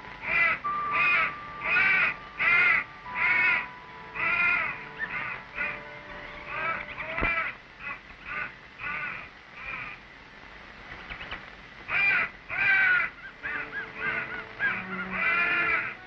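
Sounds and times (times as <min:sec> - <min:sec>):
thin steady high tone: 0:00.0 - 0:07.6, 0:13.2 - 0:16.0
harsh crow-like cawing: 0:00.2 - 0:05.8, 0:06.5 - 0:10.0, 0:11.9 - 0:16.0.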